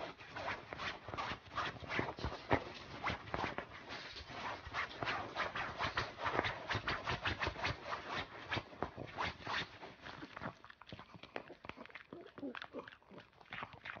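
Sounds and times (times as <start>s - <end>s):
dog pawing at a duvet: 0.0s - 10.0s
fabric rustling and scratching: 0.0s - 10.1s.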